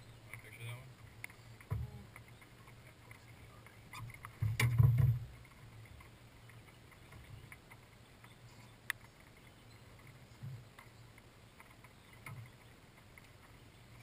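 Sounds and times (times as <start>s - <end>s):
light clicks and rattles: 0.2s - 14.0s
thumps on boat deck: 4.4s - 5.3s.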